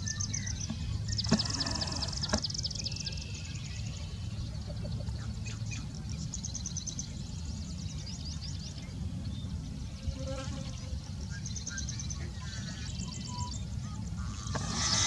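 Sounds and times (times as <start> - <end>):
blackbird calling: 0.0 - 3.4.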